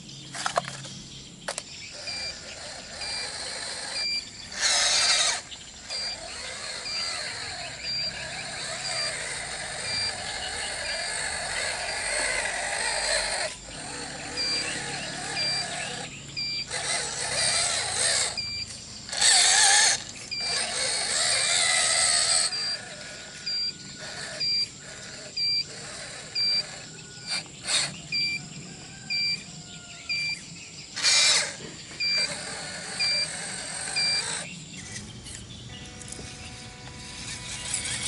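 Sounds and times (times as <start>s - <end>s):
small electric motors whining: 0.3s - 38.0s
two-pitch warning beeper: 2.1s - 2.4s, 3.9s - 4.3s, 5.9s - 11.2s, 14.3s - 16.7s, 18.4s - 18.7s, 22.3s - 24.8s, 26.3s - 26.7s, 28.1s - 28.4s, 29.1s - 29.5s, 30.1s - 30.5s, 32.0s - 32.3s, 34.0s - 34.4s.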